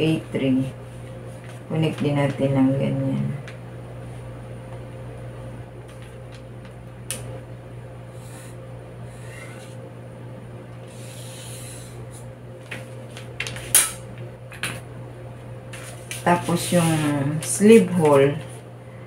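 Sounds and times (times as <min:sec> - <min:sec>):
steady low hum: 0:00.0 - 0:19.0
marker scratching on paper: 0:08.1 - 0:09.8, 0:10.9 - 0:12.2.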